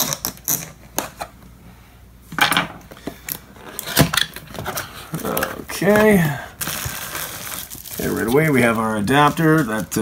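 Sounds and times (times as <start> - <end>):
knife cutting box tape: 0.0 - 1.2.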